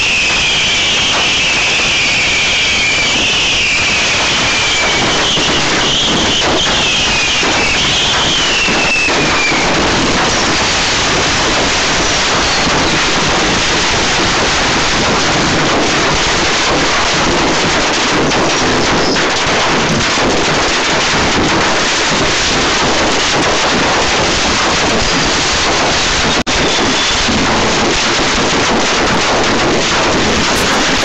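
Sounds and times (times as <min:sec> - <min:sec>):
fireworks crackling: 0:30.0 - 0:31.0.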